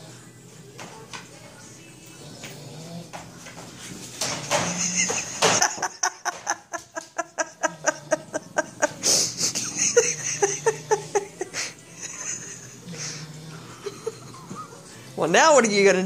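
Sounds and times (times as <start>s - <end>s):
person laughing in rhythmic bursts: 4.6s - 13.2s.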